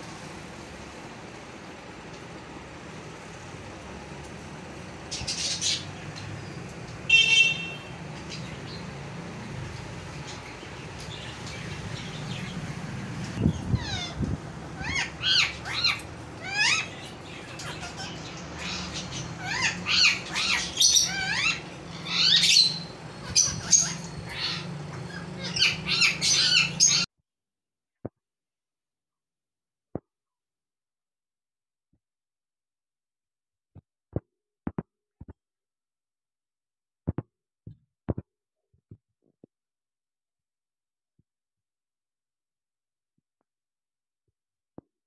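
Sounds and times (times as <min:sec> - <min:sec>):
parrot squawking and whistling: 0:14.8 - 0:17.0, 0:17.6 - 0:27.1.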